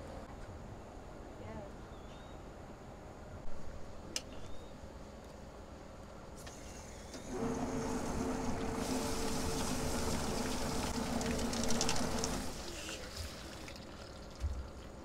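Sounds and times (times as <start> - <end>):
hose spraying water: 6.4 - 15.0
plucker motor humming: 7.3 - 12.6
poultry plucker drum spinning: 7.3 - 13.0.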